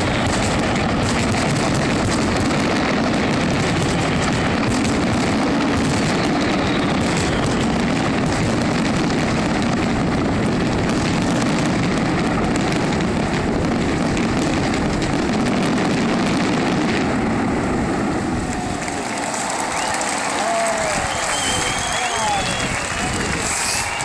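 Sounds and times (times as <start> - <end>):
fireworks crackling roar: 0.0 - 24.0
crowd applauding and cheering: 18.4 - 24.0.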